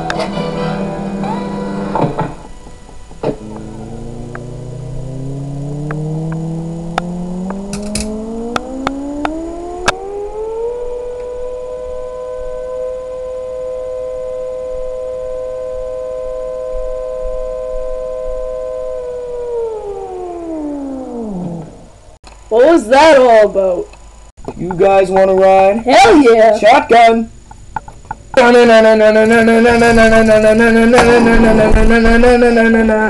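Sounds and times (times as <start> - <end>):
electric pump motor whining: 1.1 - 22.1
sharp clicks: 5.8 - 10.0.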